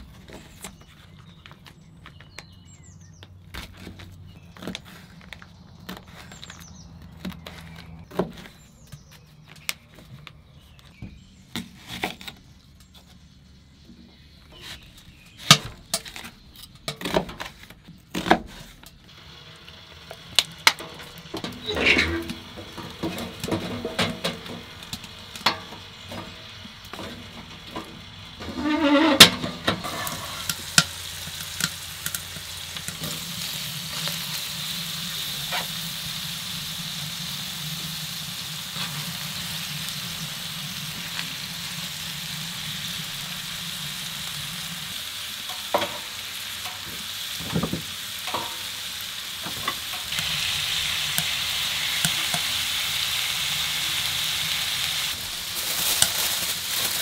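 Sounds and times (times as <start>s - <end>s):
chicken sizzling in skillet: 19.1s - 57.0s.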